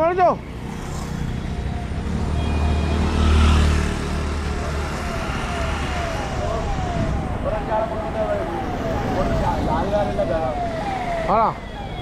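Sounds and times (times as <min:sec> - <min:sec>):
steady traffic noise: 0:00.0 - 0:12.0
vehicle passing close by: 0:00.5 - 0:11.3.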